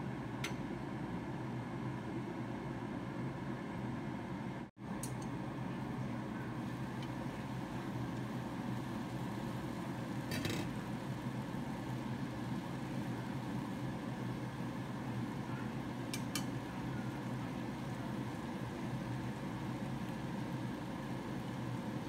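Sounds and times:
low kitchen hum: 0:00.0 - 0:22.0
squash stir-frying in pan: 0:04.9 - 0:22.0
utensil clacking on pan: 0:16.1 - 0:16.6.

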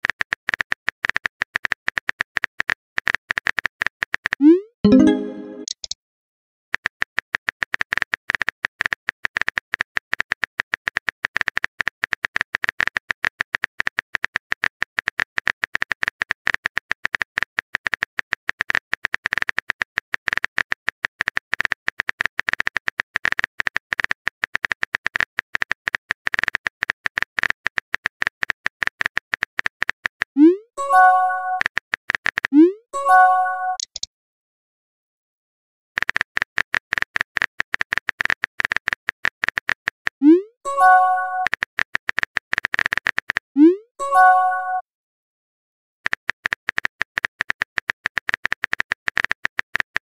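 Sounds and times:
keyboard typing clicks: 0:04.2 - 0:06.0, 0:30.9 - 0:34.1
message pop: 0:04.4 - 0:05.9.

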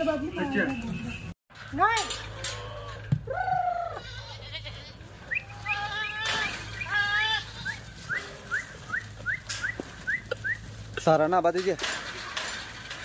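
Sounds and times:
goats bleating: 0:02.4 - 0:08.6.

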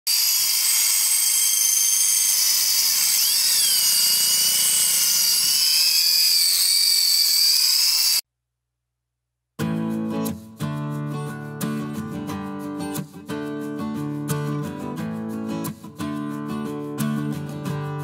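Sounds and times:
angle grinder whining: 0:00.1 - 0:08.2.

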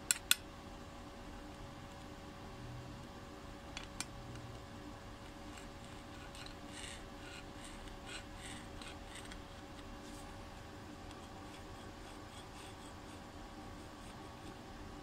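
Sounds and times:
faint steady hum: 0:00.0 - 0:15.0
electrode scraping on steel: 0:05.5 - 0:09.4.

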